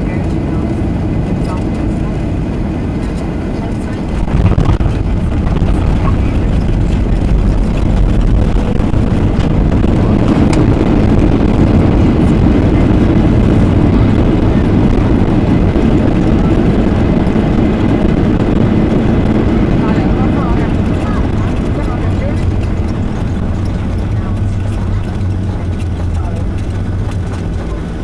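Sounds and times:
jet engines roaring: 0:00.0 - 0:28.0
wheels rumbling on runway: 0:00.0 - 0:28.0
touchdown jolt: 0:04.1 - 0:12.0.

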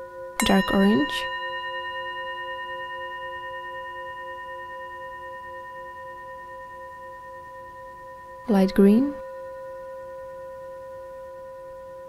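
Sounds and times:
bell-like ringing tones: 0:00.0 - 0:12.0.

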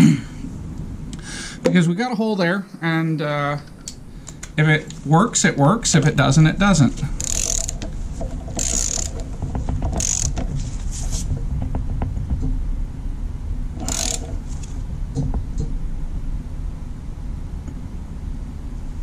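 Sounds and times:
ratcheting wrench clicking: 0:07.0 - 0:10.5, 0:13.8 - 0:14.7.

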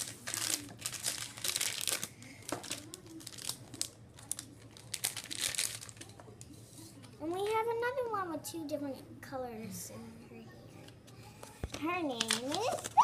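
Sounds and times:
foil bag crinkling and tearing: 0:00.0 - 0:06.2, 0:12.2 - 0:13.0.

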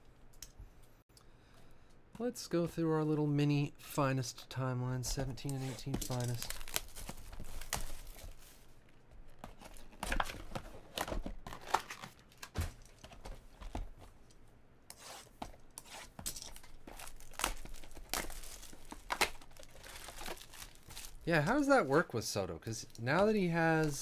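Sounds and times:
card packaging tearing and crinkling: 0:05.5 - 0:08.4, 0:09.5 - 0:12.9, 0:16.4 - 0:21.9.

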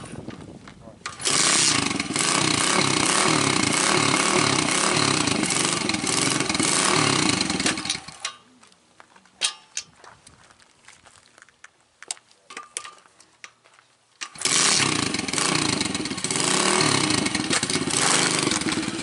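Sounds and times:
dirt bike engine running: 0:01.1 - 0:08.2, 0:14.3 - 0:19.0.

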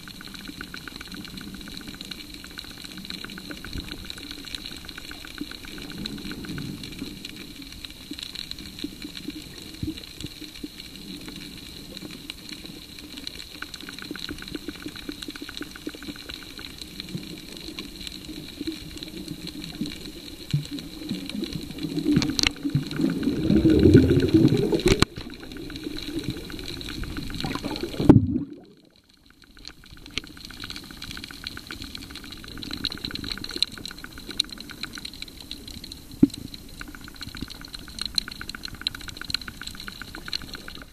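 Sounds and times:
crackle of tiny clicks: 0:00.0 - 0:40.9
underwater water sloshing: 0:13.0 - 0:40.9
low churning rumble: 0:20.4 - 0:29.1.

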